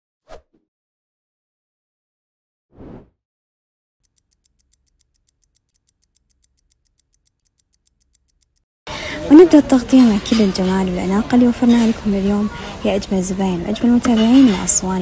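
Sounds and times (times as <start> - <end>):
fast clock ticking: 4.0 - 8.7.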